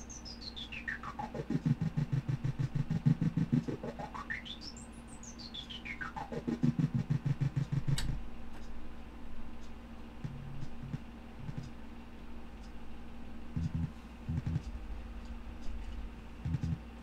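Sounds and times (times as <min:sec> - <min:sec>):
synthesizer tone sweeping: 0:00.0 - 0:08.0, 0:13.6 - 0:14.6
chopped low buzz: 0:00.0 - 0:08.4, 0:10.2 - 0:11.7, 0:12.8 - 0:16.9
low hum: 0:00.0 - 0:17.0
sharp click: 0:07.6 - 0:08.7.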